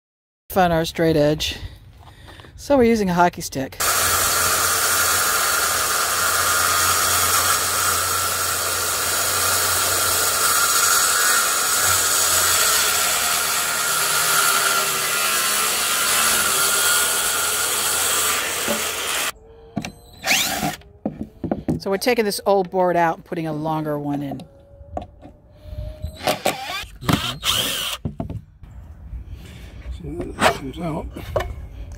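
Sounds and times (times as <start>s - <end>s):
circular saw cutting plywood: 3.8s - 22.2s, 26.1s - 28.1s.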